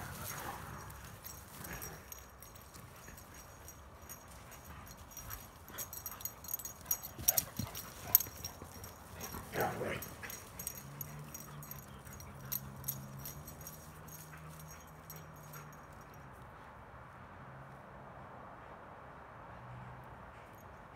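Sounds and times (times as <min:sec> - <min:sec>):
dog paws clicking and thudding: 0:00.0 - 0:16.2.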